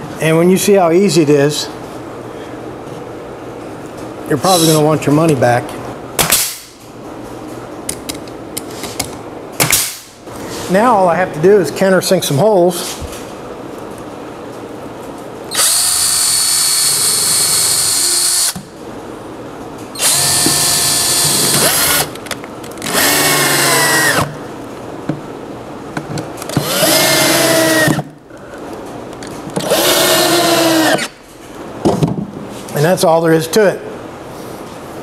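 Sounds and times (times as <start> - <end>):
electric drill drilling into wood: 15.5 - 18.6, 20.0 - 22.1, 22.9 - 24.3, 26.6 - 28.0, 29.6 - 31.1.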